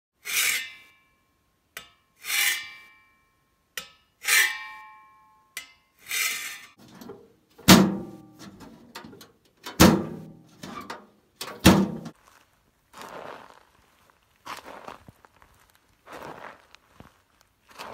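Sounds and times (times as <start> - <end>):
hand saw on ringing steel pipe: 0.2 - 6.8
boot steps crunching on gravel: 12.1 - 17.9.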